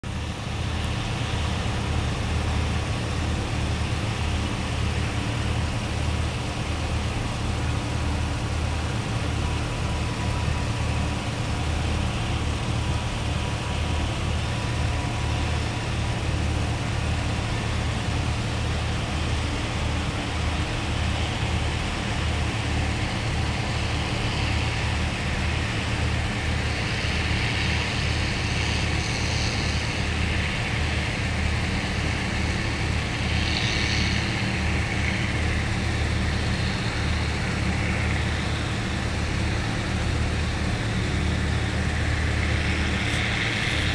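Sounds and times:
harvester engine drone: 0.0 - 43.9
rushing hiss of chopping: 42.8 - 43.9.

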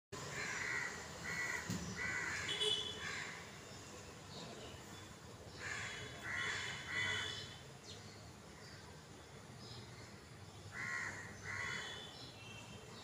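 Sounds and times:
crow cawing: 0.3 - 3.4, 5.6 - 7.5, 10.7 - 12.0.

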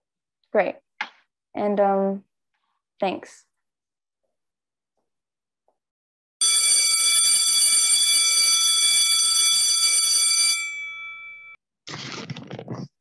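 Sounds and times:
electric bell ringing: 6.4 - 11.6.

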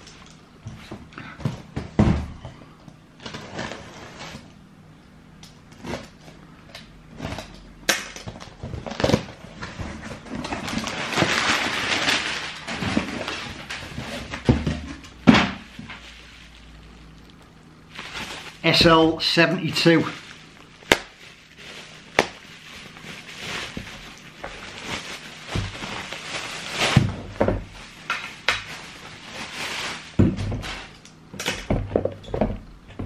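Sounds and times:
plastic wrapping rustling: 0.0 - 4.6, 5.5 - 33.0
boxes knocking and thudding: 0.7 - 2.6, 12.7 - 16.0, 30.2 - 30.8, 31.6 - 33.0.

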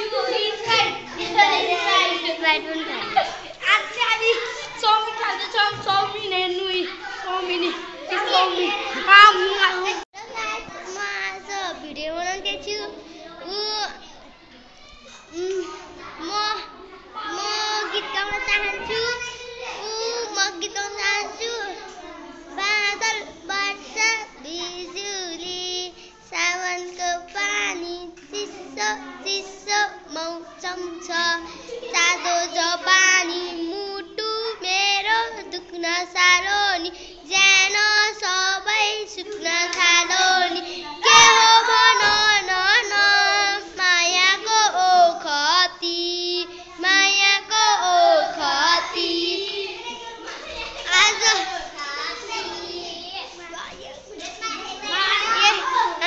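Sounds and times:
girl singing: 17.2 - 50.0.

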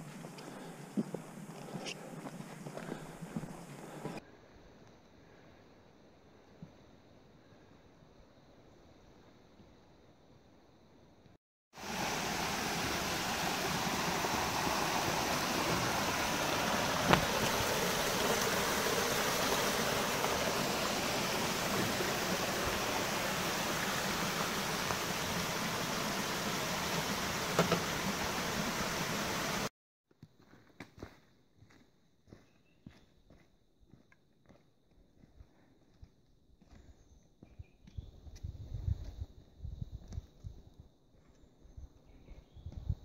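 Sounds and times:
creek water rushing over rocks: 11.8 - 29.7.

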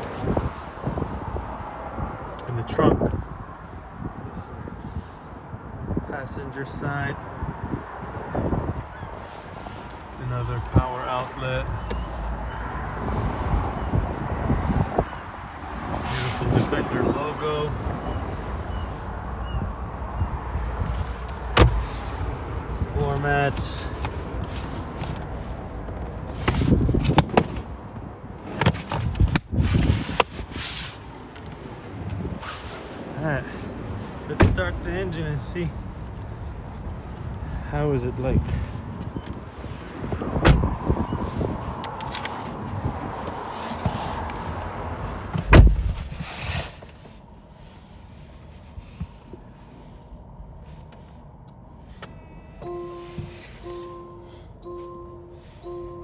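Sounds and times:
car door shutting: 20.8 - 22.3, 34.3 - 34.7, 40.2 - 40.8, 45.2 - 46.3, 52.0 - 56.0.

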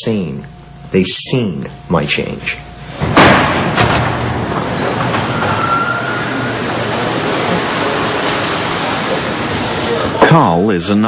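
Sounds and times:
kitchen equipment and ventilation: 0.0 - 11.0
faint brief whine: 5.2 - 6.8.

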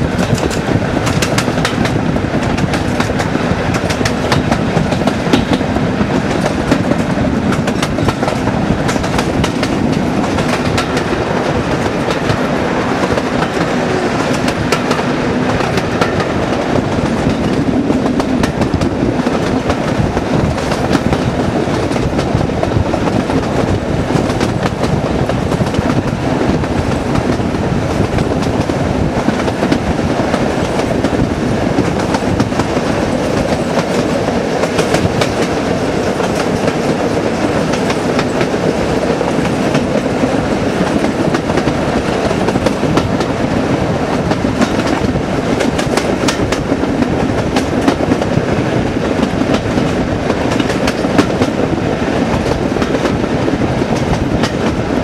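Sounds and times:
wheels clicking over rail joints: 0.0 - 43.4, 44.1 - 53.3
diesel locomotive engine working hard: 0.0 - 55.0
wind rush: 0.0 - 55.0.

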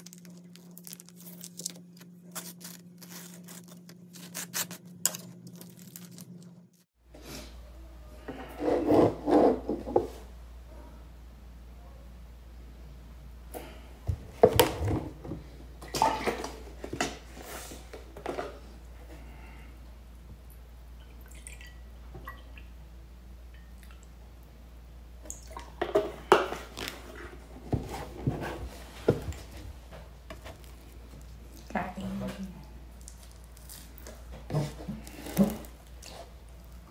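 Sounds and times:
toast being chewed: 0.0 - 6.8.

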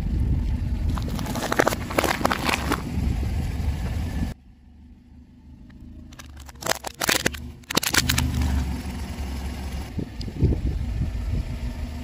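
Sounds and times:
car rumble: 0.0 - 12.0
cucumbers cracking under tyre: 0.8 - 3.0, 6.1 - 8.6.

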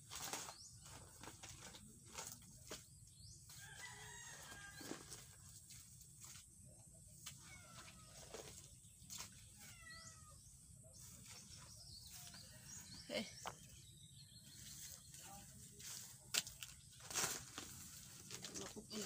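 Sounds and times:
faint wavering animal calls: 7.2 - 8.7.

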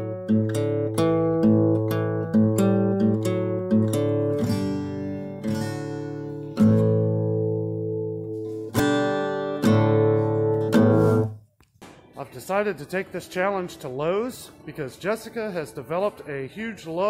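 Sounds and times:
acoustic guitar chords strummed: 0.0 - 11.4.

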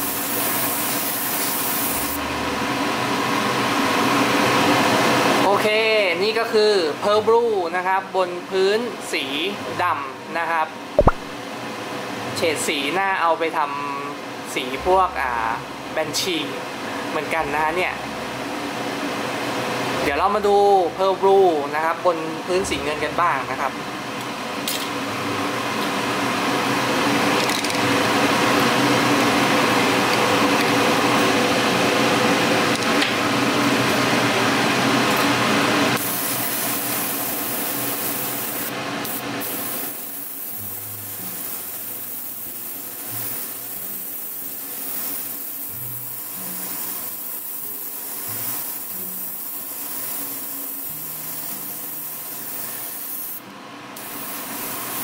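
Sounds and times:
airbrush hissing: 0.0 - 2.2, 36.0 - 53.4, 54.0 - 55.0
compressor hum: 0.0 - 5.4, 14.1 - 21.6, 22.2 - 44.8.

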